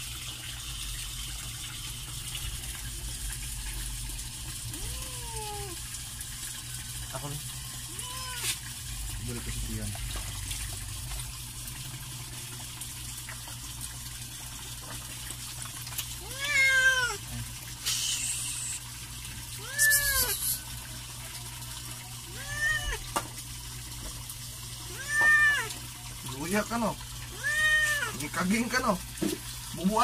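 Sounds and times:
cat meowing: 4.7 - 5.8, 7.9 - 8.6, 16.2 - 17.2, 19.6 - 20.6, 22.3 - 23.1, 24.9 - 25.8, 27.3 - 28.2.

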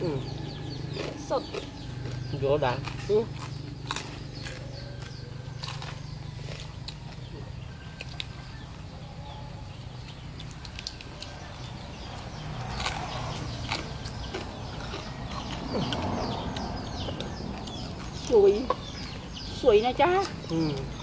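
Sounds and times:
chewing and lip smacks: 10.1 - 11.9, 12.6 - 18.2.

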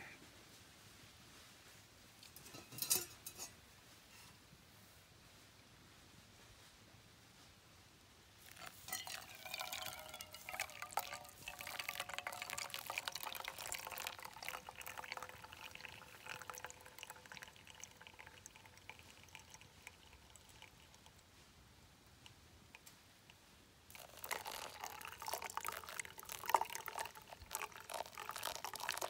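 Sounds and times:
water pouring and trickling: 8.4 - 21.2, 23.9 - 29.0.

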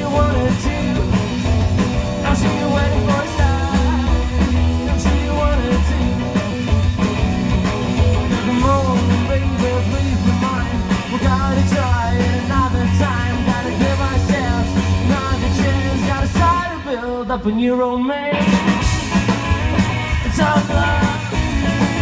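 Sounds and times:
double bass: 0.0 - 16.6
drums: 0.0 - 22.0
electric guitar: 0.0 - 22.0.

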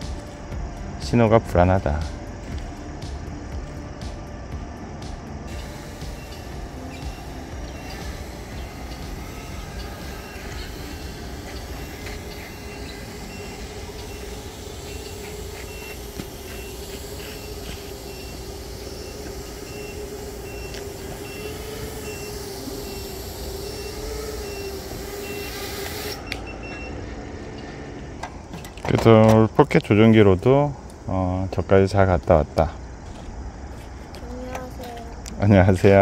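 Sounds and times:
continuous wavering hum: 0.0 - 36.0
outdoor background noise: 0.0 - 36.0
high-pitched warning beeps: 5.5 - 28.0.

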